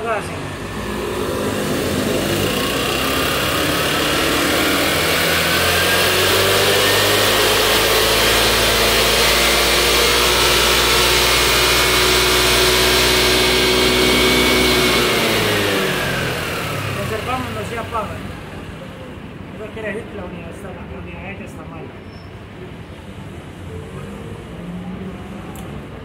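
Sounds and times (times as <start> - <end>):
scooter engine revving: 0.0 - 19.8.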